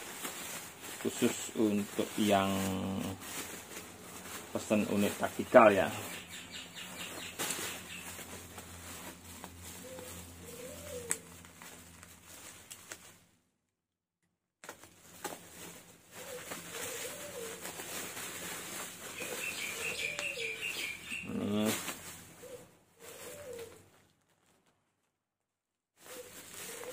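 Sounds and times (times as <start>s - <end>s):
bubble wrap crinkling: 0.0s - 13.4s, 14.6s - 25.2s, 26.0s - 26.9s
dove cooing: 6.0s - 11.4s, 16.1s - 23.9s, 26.0s - 26.9s.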